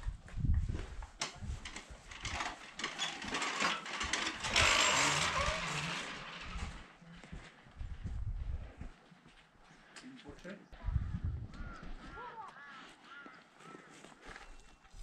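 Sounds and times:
prayer wheels rattling and clicking: 1.1s - 7.0s.

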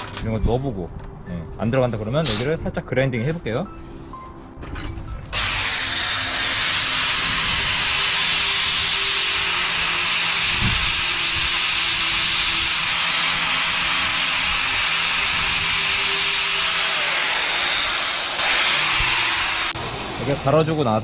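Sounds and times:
angle grinder grinding steel: 5.4s - 20.8s.

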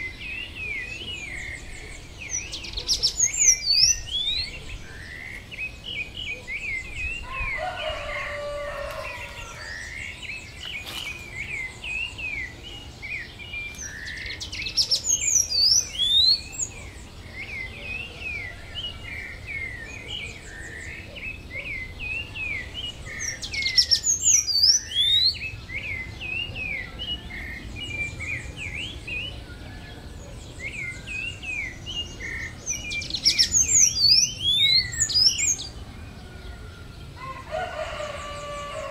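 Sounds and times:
small birds chirping: 0.0s - 38.9s.

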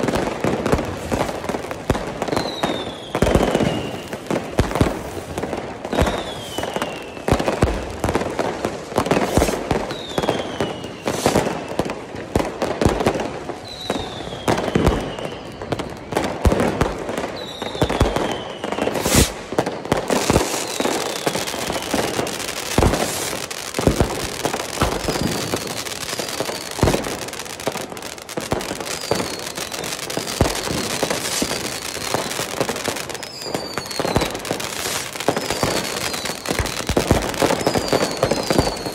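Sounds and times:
fireworks bangs and crackling: 0.0s - 38.9s
falling whistles: 2.3s - 4.3s, 5.9s - 7.5s, 9.8s - 11.8s, 13.6s - 16.2s, 17.2s - 19.4s, 20.1s - 23.0s, 28.9s - 31.9s, 33.2s - 37.0s, 37.6s - 38.9s.

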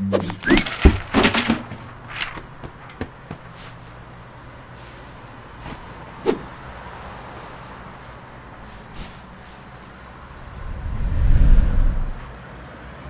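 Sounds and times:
traffic hum: 0.0s - 13.0s.

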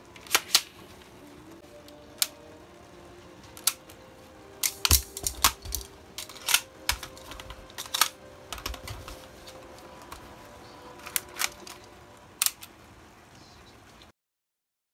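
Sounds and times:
sharp clicks and clacks of guns: 4.6s - 9.0s.

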